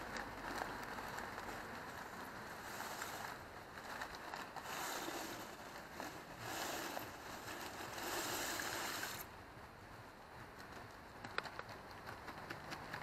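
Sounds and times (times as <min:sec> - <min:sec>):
granules pouring into water: 0:00.3 - 0:09.3.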